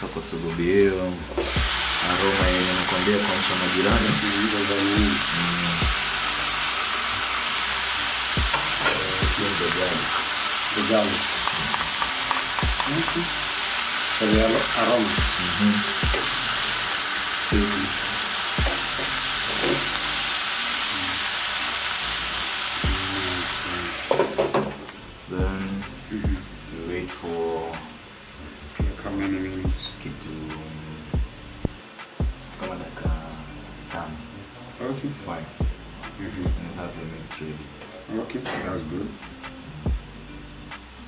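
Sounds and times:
meat sizzling in a frying pan: 0.0 - 41.0.

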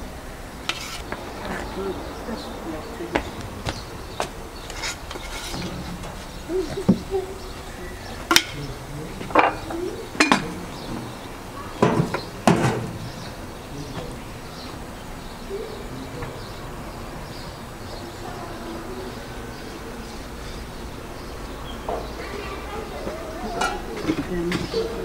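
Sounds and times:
utensils and dishes clinking: 4.7 - 7.4, 8.2 - 11.1, 23.4 - 25.0.

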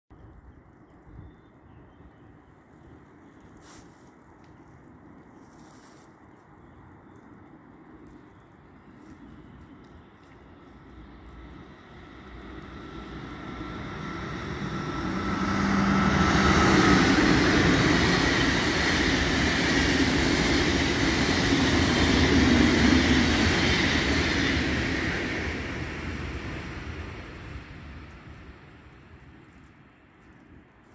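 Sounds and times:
train passing at speed: 9.2 - 30.1.

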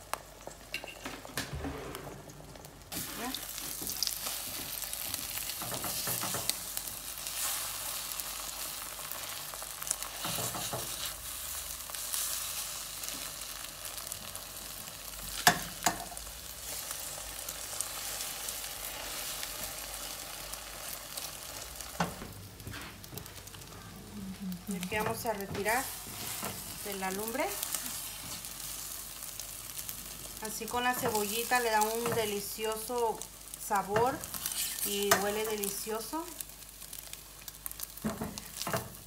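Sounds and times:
eggs sizzling in oil: 0.0 - 39.0
spatula scraping pot: 34.4 - 34.9.

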